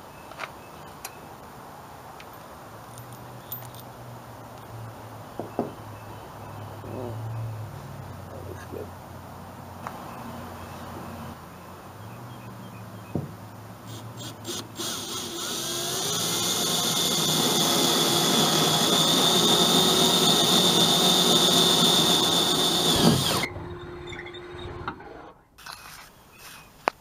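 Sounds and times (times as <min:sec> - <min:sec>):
cordless drill boring: 0:13.9 - 0:23.5.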